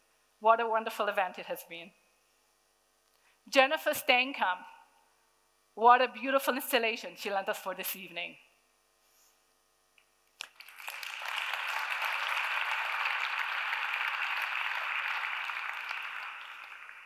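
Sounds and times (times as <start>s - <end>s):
audience applauding: 10.4s - 17.0s.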